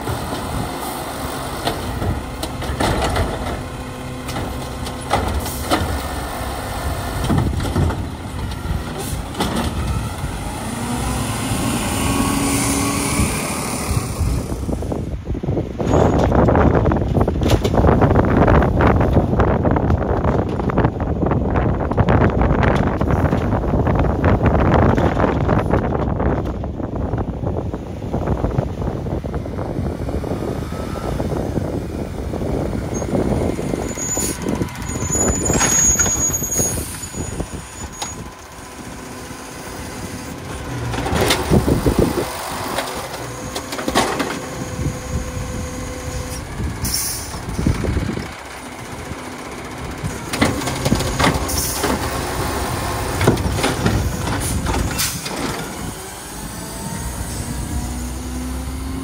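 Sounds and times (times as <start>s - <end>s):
truck engine running: 0.0s - 59.0s
trash cart banging: 1.3s - 10.8s, 32.4s - 55.9s
air brakes releasing: 46.3s - 47.6s.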